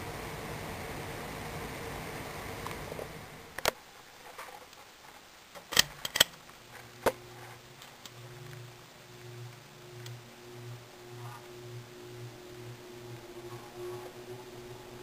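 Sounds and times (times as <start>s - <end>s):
ceiling fan whooshing: 0.0s - 4.3s, 5.4s - 15.0s
sharp clicks: 5.5s - 7.2s, 7.8s - 10.2s
low motor hum: 6.6s - 15.0s.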